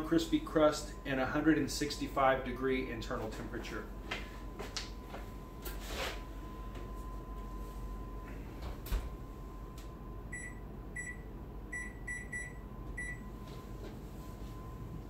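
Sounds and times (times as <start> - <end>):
faint steady hum: 0.0 - 15.0
electronic keypad beeps: 10.3 - 13.3.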